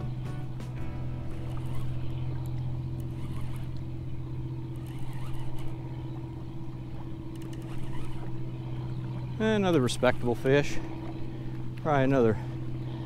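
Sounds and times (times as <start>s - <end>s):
low mechanical hum: 0.0s - 13.0s
faint light clicks: 1.5s - 3.9s, 7.3s - 8.3s.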